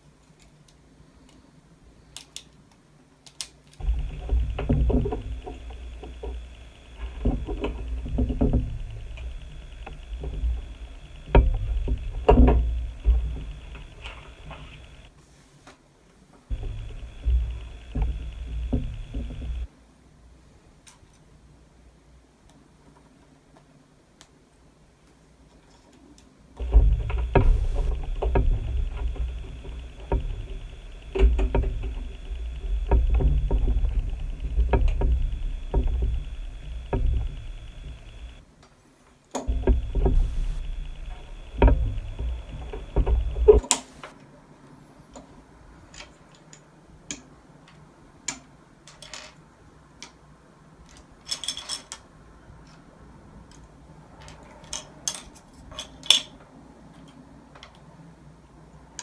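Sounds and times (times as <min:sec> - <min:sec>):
low rumble with high tone: 0:03.8 - 0:15.1, 0:16.5 - 0:19.7, 0:26.6 - 0:38.4, 0:39.5 - 0:44.1.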